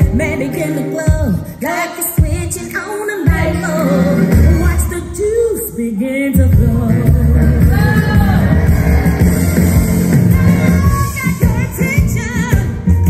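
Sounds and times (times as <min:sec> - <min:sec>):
pop-rock song: 0:00.0 - 0:13.0
heavy bass beat: 0:03.3 - 0:05.6, 0:06.4 - 0:13.0.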